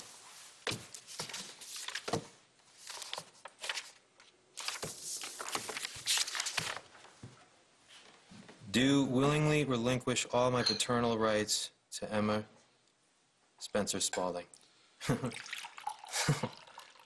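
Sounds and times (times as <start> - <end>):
paper rustling and crackling: 0.6 - 7.2.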